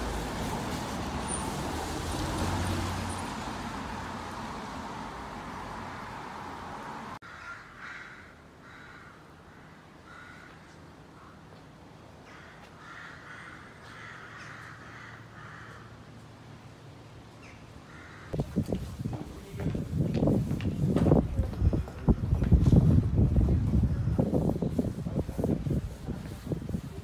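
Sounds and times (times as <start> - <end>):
crows cawing: 7.2 - 11.5, 12.2 - 16.1, 17.8 - 18.4
wind buffeting microphone: 18.4 - 27.0.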